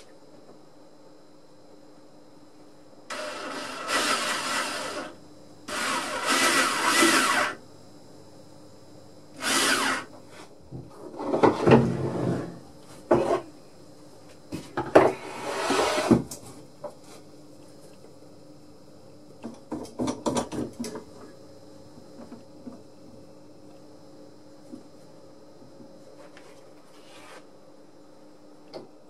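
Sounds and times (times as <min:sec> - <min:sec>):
drill boring into wood: 0:03.1 - 0:07.6, 0:09.4 - 0:10.1.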